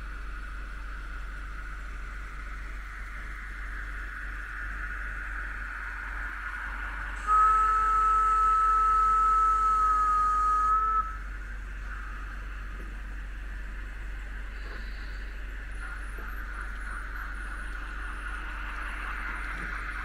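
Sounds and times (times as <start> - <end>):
model trains whirring: 0.0 - 20.0
model steam whistle: 7.2 - 11.3.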